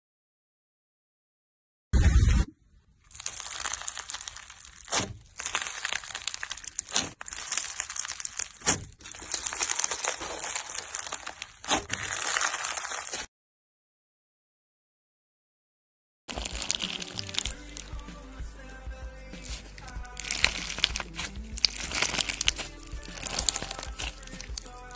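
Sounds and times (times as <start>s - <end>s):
slime crackling and crunching: 3.0s - 13.3s, 16.3s - 24.9s.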